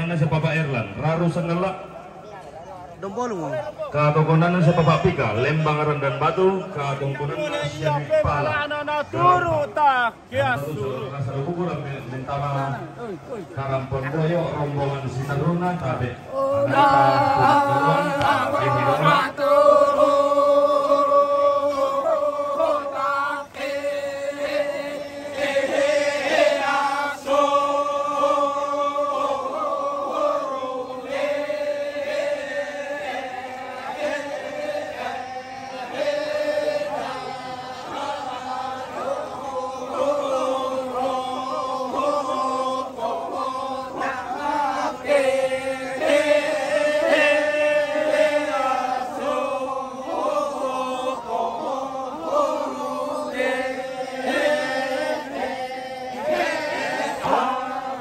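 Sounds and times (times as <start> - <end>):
group chanting in long notes: 16.2 - 58.0.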